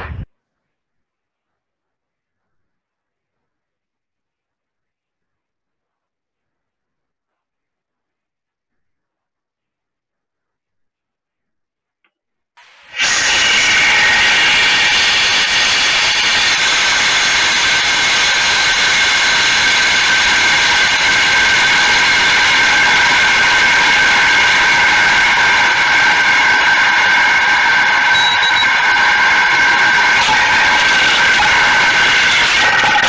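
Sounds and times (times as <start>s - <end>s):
wind rushing over camera: 0.0s - 0.3s
whistling tones: 28.0s - 29.0s.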